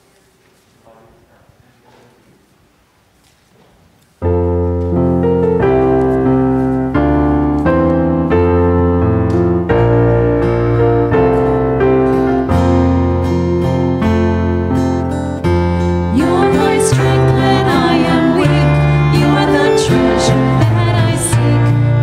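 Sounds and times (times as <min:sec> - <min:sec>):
room murmur: 0:00.0 - 0:08.2
electric piano chords: 0:04.2 - 0:22.0.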